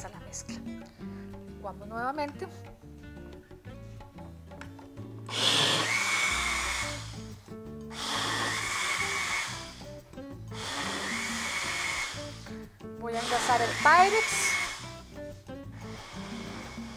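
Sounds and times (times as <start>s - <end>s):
background music: 0.0s - 16.9s
blender motor whining: 5.3s - 15.2s, 15.8s - 16.9s.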